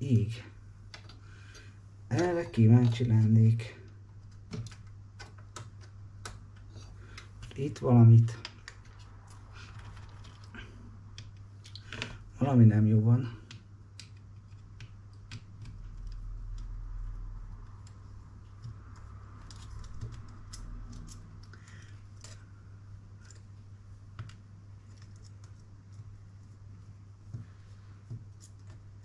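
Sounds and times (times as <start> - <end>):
plastic parts clicking and rustling: 3.8 - 12.2.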